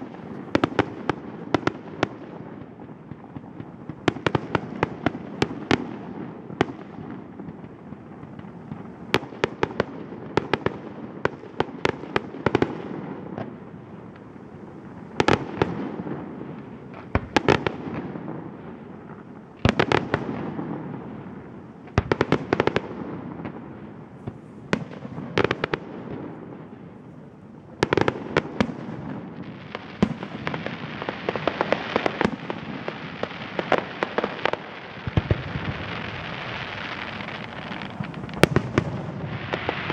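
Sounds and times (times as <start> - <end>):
firework crackling: 0.0 - 39.9
firework shells bursting: 35.0 - 39.9.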